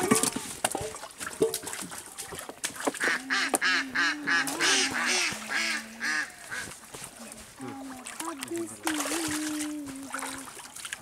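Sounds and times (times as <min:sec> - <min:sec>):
ducks quacking: 0:03.0 - 0:06.8.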